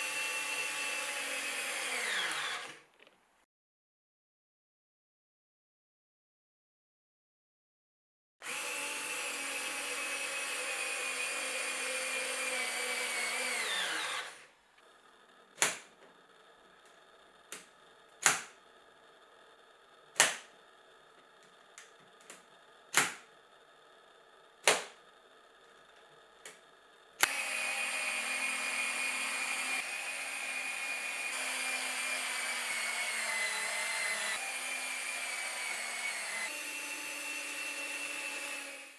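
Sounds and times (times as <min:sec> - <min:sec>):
cordless screwdriver whining: 0:00.0 - 0:02.8, 0:08.4 - 0:14.4, 0:27.2 - 0:38.8.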